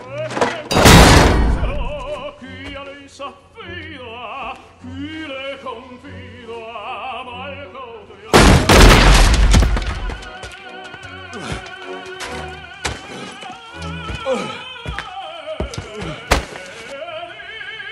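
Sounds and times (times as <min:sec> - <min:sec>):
operatic singing with vibrato: 0:00.0 - 0:17.9
sudden loud bang: 0:00.8 - 0:02.0, 0:08.4 - 0:10.0.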